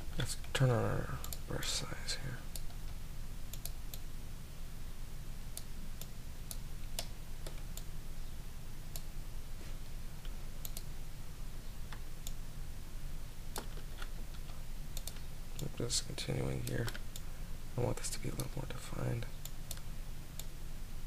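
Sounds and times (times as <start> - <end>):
low electrical hum: 0.0 - 21.0
computer mouse clicks: 1.2 - 1.5, 2.5 - 4.0, 5.6 - 7.9, 10.2 - 10.9, 13.5 - 15.7, 19.4 - 20.5.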